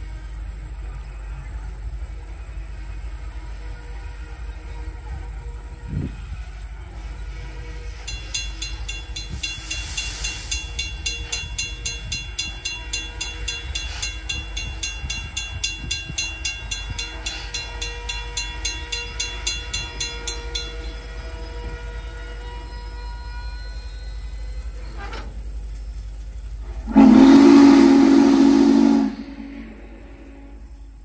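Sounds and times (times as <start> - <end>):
steam locomotive train rumbling past: 0.0 - 31.0
crossing bell ringing: 7.5 - 24.8.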